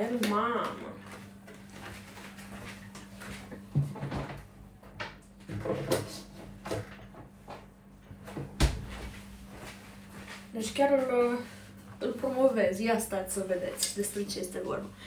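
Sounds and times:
steady low hum: 0:00.0 - 0:15.0
kitchen knocks and clunks: 0:03.7 - 0:07.3.

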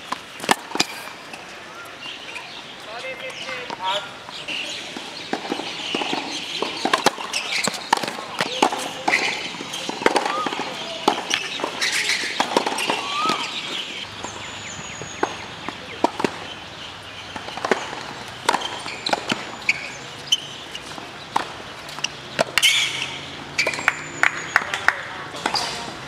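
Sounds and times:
tennis balls struck and bouncing: 0:00.0 - 0:01.4, 0:03.2 - 0:26.0.

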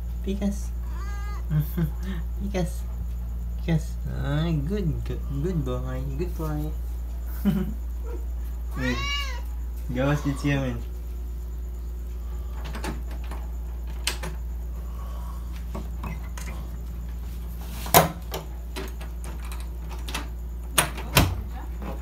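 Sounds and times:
wooden door clicks and knocks: 0:18.0 - 0:22.0.

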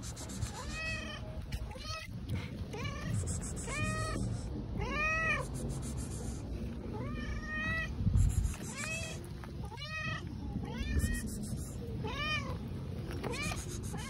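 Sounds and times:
cat meowing loudly: 0:00.5 - 0:02.1, 0:02.7 - 0:05.5, 0:08.6 - 0:11.4.

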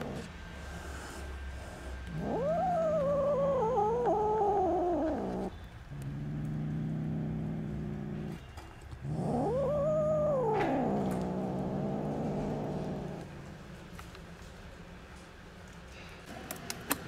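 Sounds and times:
kitten low rumble: 0:00.0 - 0:08.4, 0:09.0 - 0:13.6
kitten yowling: 0:02.1 - 0:06.2, 0:09.1 - 0:13.2.

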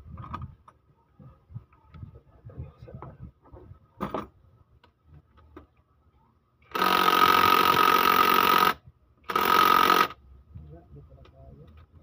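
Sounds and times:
impact wrench running: 0:06.7 - 0:10.2.

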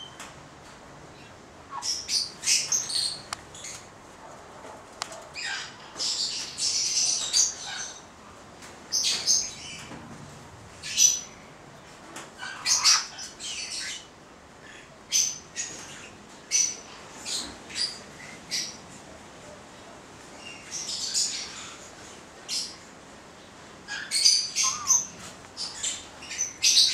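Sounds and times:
parrots chirping and squawking: 0:01.2 - 0:03.9, 0:05.1 - 0:08.1, 0:12.4 - 0:18.8, 0:23.9 - 0:26.9.

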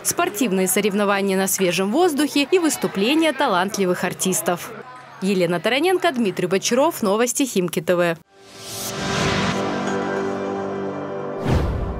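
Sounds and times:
theme music with sustained chords: 0:08.3 - 0:11.9.

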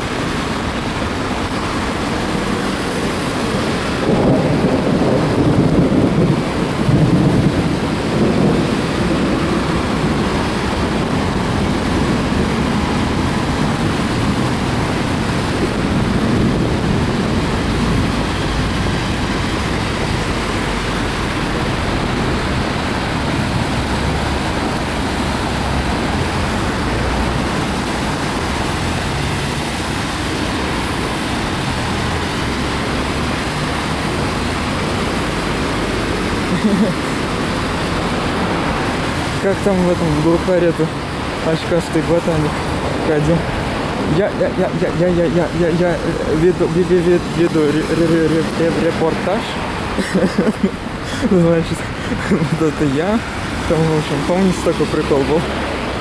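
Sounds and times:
heavy rain: 0:00.0 - 0:56.0
tyres hissing on wet road: 0:00.0 - 0:56.0
low rumble of thunder: 0:03.6 - 0:36.4.

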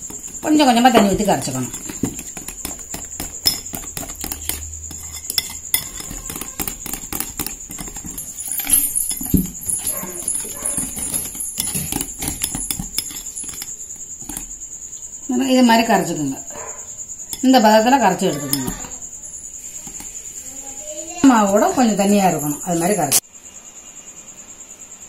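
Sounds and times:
whisk clicking against glass bowl: 0:00.0 - 0:14.5.

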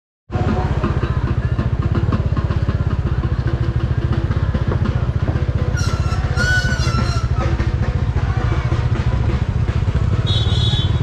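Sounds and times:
motorcycle engine thumping: 0:00.3 - 0:11.0.

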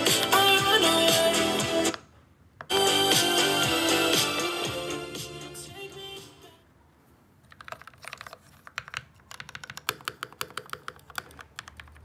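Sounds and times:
music: 0:00.0 - 0:02.0, 0:02.7 - 0:06.6
mechanical keyboard typing: 0:07.5 - 0:12.0.

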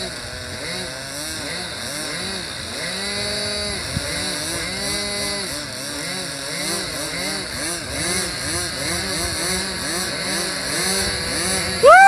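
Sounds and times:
model airplane engines revving: 0:00.0 - 0:12.0.

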